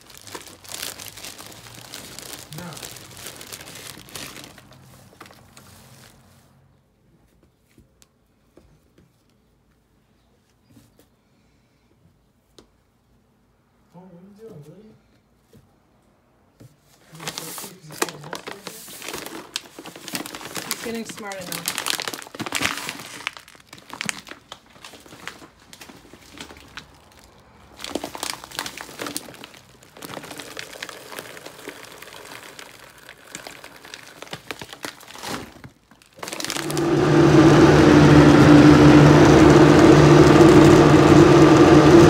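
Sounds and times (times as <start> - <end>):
plastic bag crinkling: 0.0 - 6.4, 17.1 - 42.0
blender running: 36.2 - 42.0.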